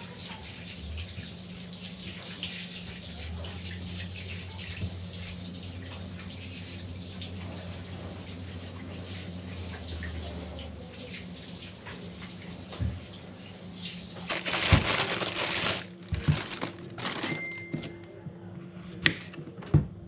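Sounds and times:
rustling and crinkling: 14.1s - 17.7s.

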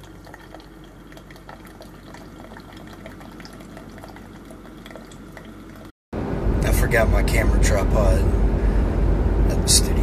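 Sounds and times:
coffee pouring into a mug: 0.0s - 5.9s
low hum of coffee maker: 0.0s - 5.9s
small drips: 0.0s - 5.9s.

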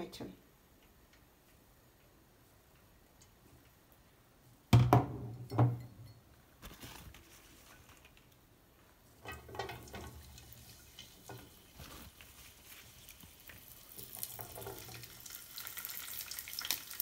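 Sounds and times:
beans clattering into hot oil: 9.2s - 17.0s.

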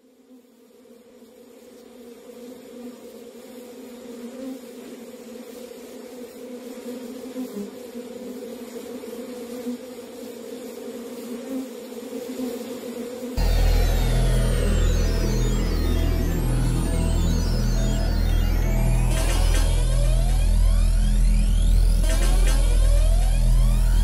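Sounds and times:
buzzing drone music: 13.4s - 24.0s.

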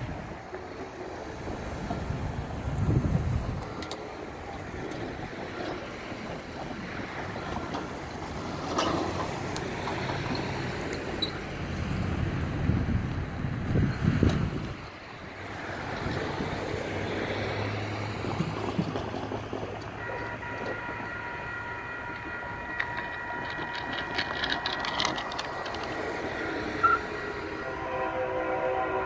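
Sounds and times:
car passing: 0.0s - 29.0s
crossing warning bell ringing: 3.3s - 11.7s, 19.9s - 29.0s.

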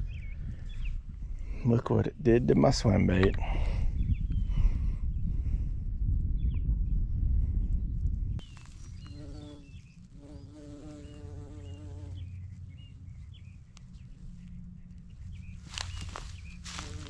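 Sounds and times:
wind rumble on microphone: 0.0s - 17.0s
small birds chirping: 8.4s - 17.0s
bee buzzing: 9.0s - 12.4s, 15.8s - 17.0s.

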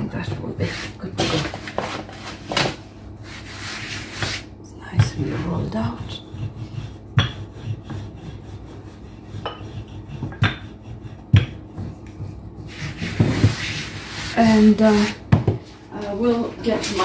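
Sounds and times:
rolling pin knocking counter: 7.1s - 8.1s, 9.4s - 12.2s.

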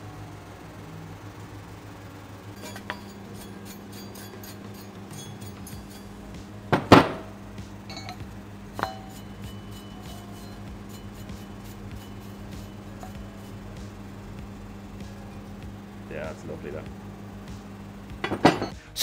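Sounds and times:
metal casting clanking: 2.5s - 16.9s, 18.2s - 18.8s
brush scrubbing metal part: 2.6s - 6.5s, 7.9s - 15.7s.

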